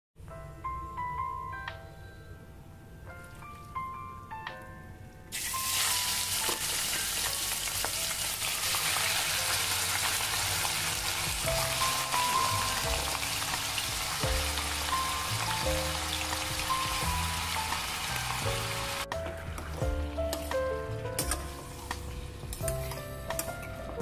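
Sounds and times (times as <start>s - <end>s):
background music: 0.2s - 24.0s
meat sizzling in hot oil: 5.3s - 20.5s.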